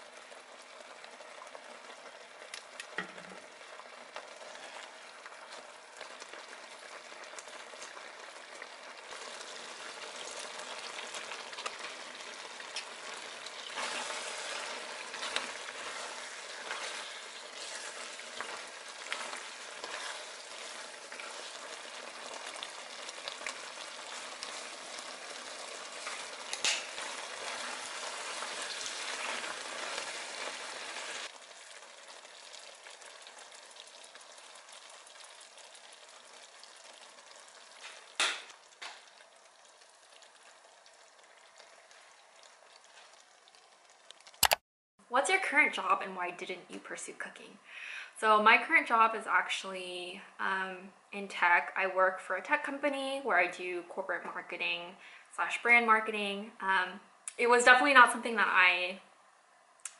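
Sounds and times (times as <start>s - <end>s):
sauce bubbling and sizzling: 0.0s - 44.4s
spatula scraping pan: 13.6s - 22.6s.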